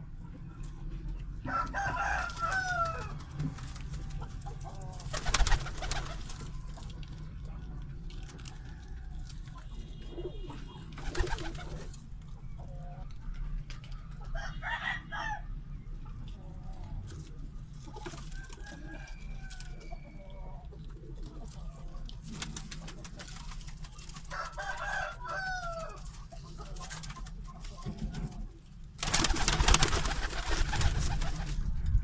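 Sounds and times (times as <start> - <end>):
rooster crowing: 1.5 - 3.2, 14.3 - 15.5, 24.3 - 26.0
pigeons cooing: 9.9 - 13.1.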